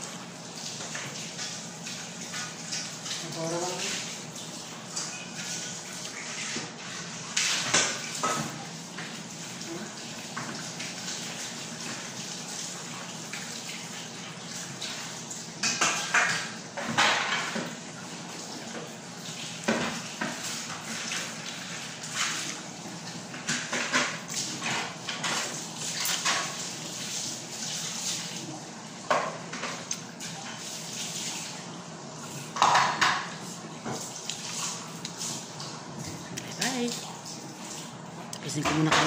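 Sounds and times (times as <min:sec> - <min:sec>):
chewing and lip-smacking: 0:34.2 - 0:37.2.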